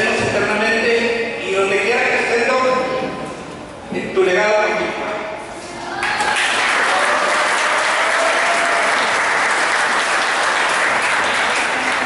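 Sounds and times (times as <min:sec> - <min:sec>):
crowd applauding: 0:05.9 - 0:12.0.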